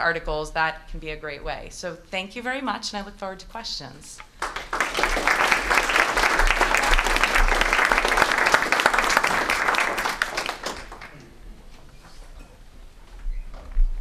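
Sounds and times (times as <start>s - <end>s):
audience applauding: 4.4s - 11.4s.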